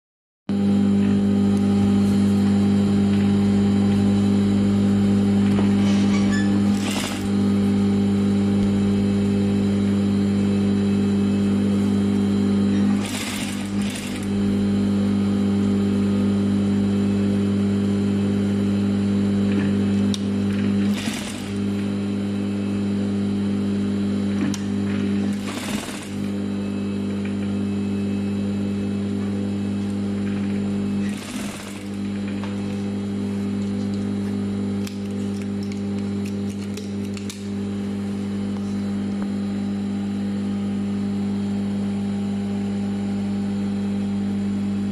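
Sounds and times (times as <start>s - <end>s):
sewing machine humming: 5.4s - 16.3s, 19.5s - 23.0s, 23.8s - 27.7s, 29.7s - 34.0s.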